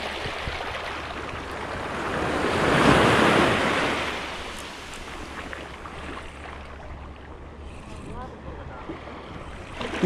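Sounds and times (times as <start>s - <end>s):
wave washing up beach: 0.0s - 5.6s
wind rumbling on microphone: 0.0s - 10.0s.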